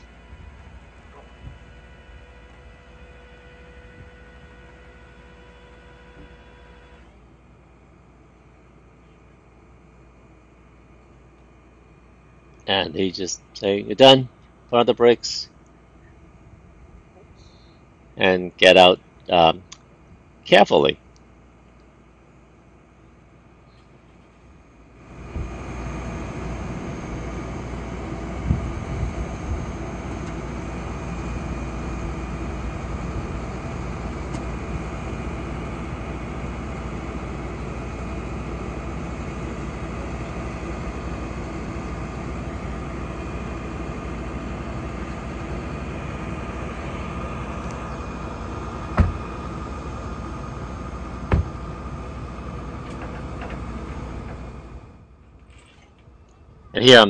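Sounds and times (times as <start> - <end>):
steady whine: 0.0 - 57.0
truck engine running: 0.0 - 57.0
sharp knocks: 49.0 - 49.2, 51.3 - 51.6.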